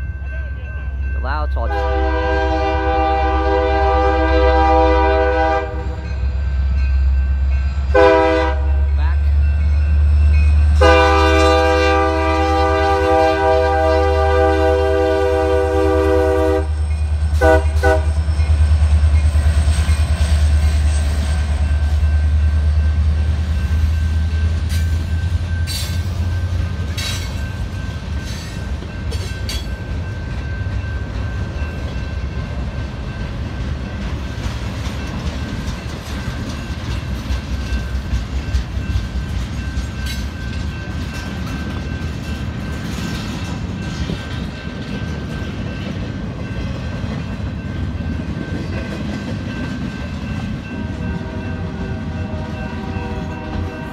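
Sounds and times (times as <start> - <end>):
crossing bell ringing: 0.0 - 53.9
rolling train wheels: 0.0 - 53.9
train horn toots: 1.6 - 6.1, 7.9 - 9.0, 10.8 - 18.3, 50.6 - 53.9.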